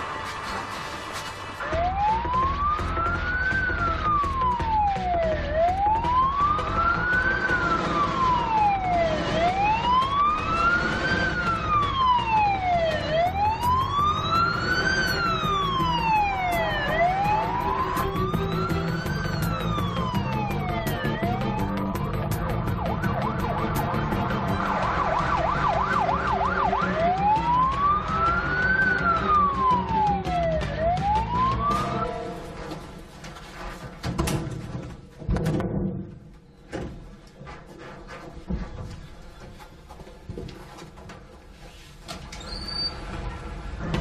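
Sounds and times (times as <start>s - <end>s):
low traffic rumble: 0.0s - 33.4s, 42.3s - 44.0s
police siren wailing: 1.4s - 32.6s.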